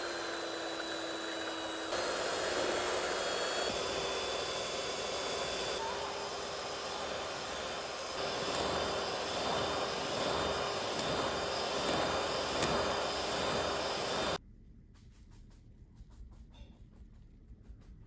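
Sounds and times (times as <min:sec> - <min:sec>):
electric hand mixer whirring: 0:00.0 - 0:14.4.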